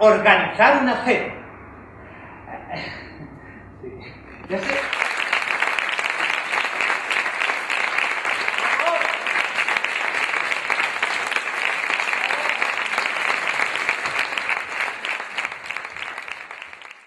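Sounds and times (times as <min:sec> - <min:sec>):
audience applauding: 0:04.4 - 0:17.0.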